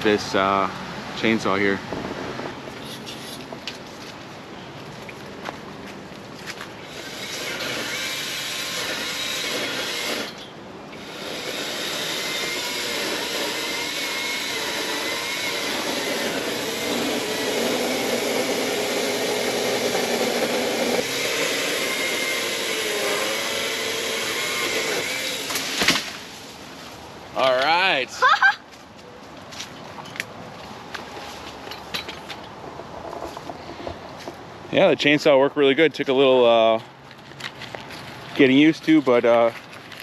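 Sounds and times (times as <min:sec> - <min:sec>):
mini chainsaw motor whining: 0:06.8 - 0:25.8.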